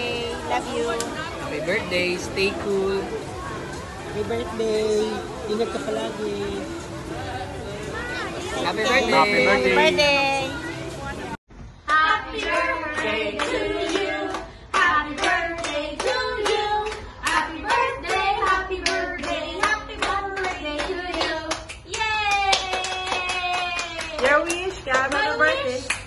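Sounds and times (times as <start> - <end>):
group singing: 11.9 - 21.7
people clapping along: 11.9 - 26.0.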